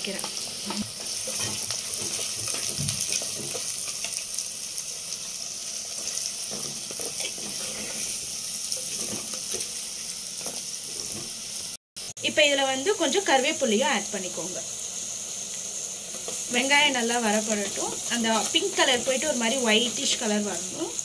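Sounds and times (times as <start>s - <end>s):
vegetables sizzling in hot oil: 0.0s - 21.0s
wooden spatula scraping pot: 6.0s - 8.2s, 8.8s - 9.7s.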